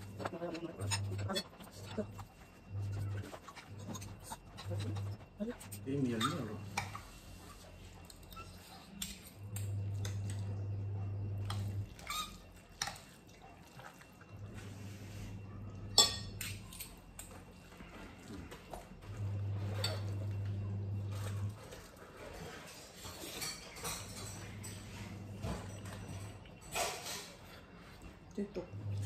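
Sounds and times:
low steady hum: 0:00.0 - 0:22.6, 0:23.6 - 0:29.0
forks clinking on glass plates: 0:15.9 - 0:17.6, 0:19.6 - 0:20.4, 0:23.0 - 0:27.6.

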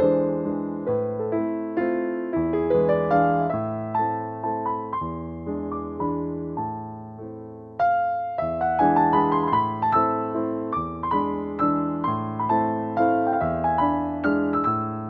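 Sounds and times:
soft piano music: 0:00.0 - 0:15.0.

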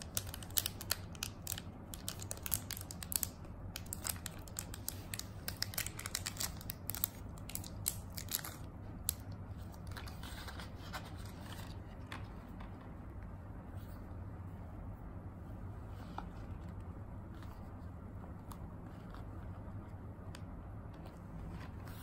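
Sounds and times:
plastic sleeve crinkling: 0:00.0 - 0:12.2.

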